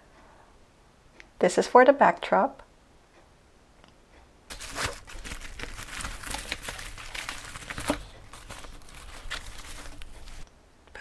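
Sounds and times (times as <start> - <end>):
plastic and nylon bag rustling: 4.5 - 10.5.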